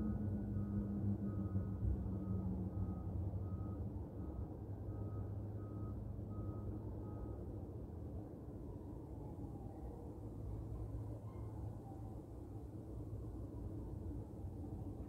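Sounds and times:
low engine rumble: 0.0 - 8.2.

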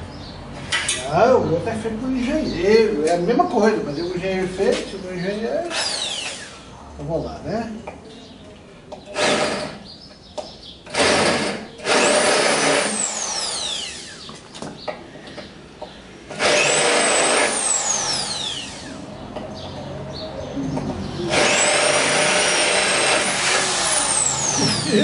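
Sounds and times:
electric drill hole saw cutting metal: 5.7 - 6.6, 10.9 - 14.3, 16.3 - 19.1, 21.3 - 25.0.

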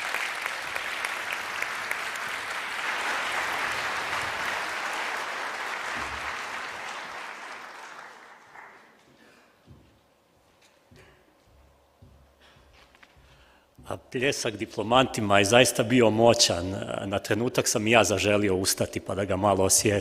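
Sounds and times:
large audience applauding: 0.0 - 9.1.

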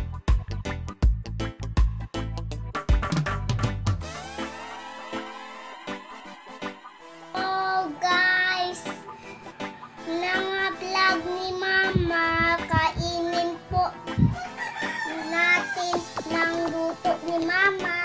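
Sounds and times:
girl singing: 7.3 - 9.0, 10.0 - 14.4, 15.1 - 18.0.

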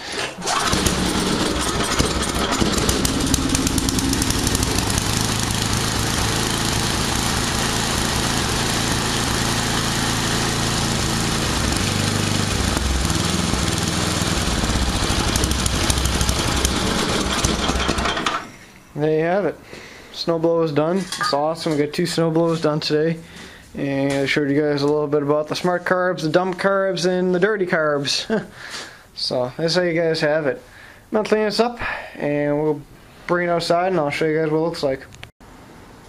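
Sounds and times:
snowblower engine running: 0.4 - 18.5.

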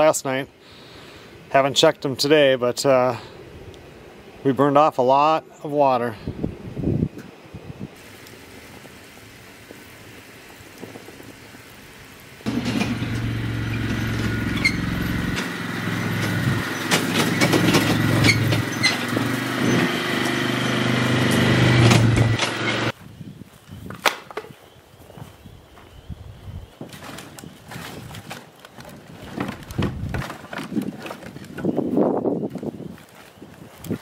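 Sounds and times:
small engine running: 12.5 - 22.9.

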